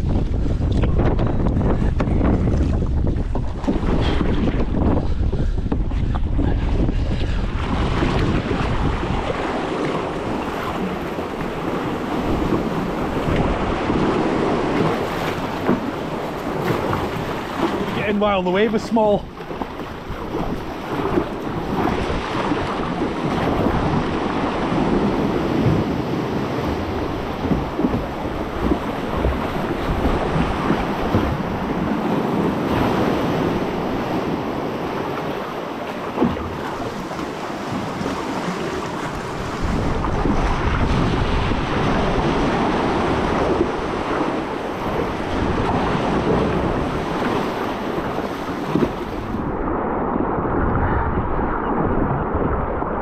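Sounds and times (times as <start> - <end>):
sea sloshing and splashing: 0.0 - 53.0
waves breaking against rocks: 0.0 - 53.0
wind buffeting microphone: 0.0 - 53.0.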